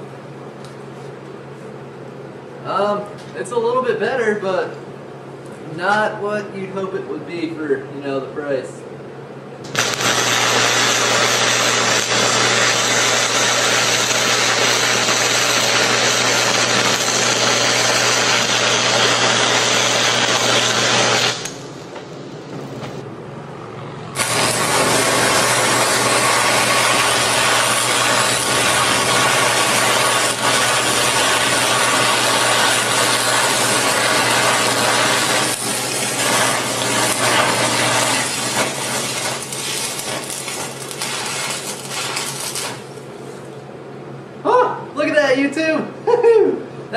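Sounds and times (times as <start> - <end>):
welding arc crackling and hissing: 9.6 - 22.1, 24.1 - 43.5.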